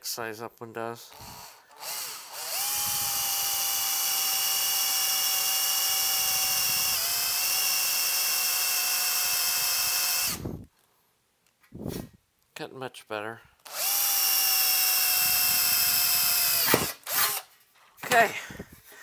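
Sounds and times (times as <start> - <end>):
power drill whining through metal: 1.1 - 10.7, 13.6 - 17.5.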